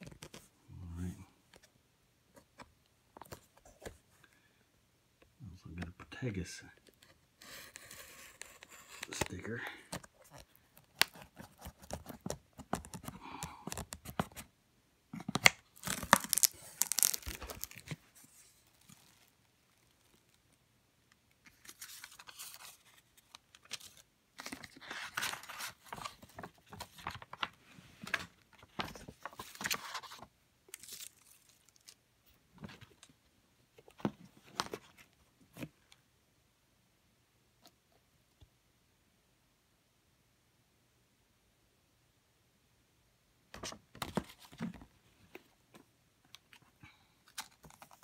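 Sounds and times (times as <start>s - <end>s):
paper tearing and rustling: 15.7s - 18.0s.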